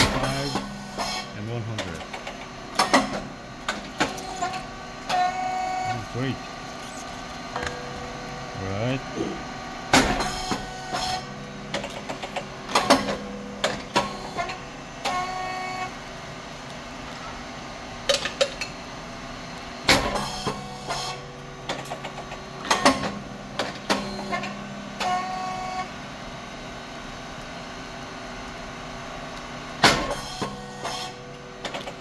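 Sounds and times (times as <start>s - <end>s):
machine humming: 0.0s - 18.2s.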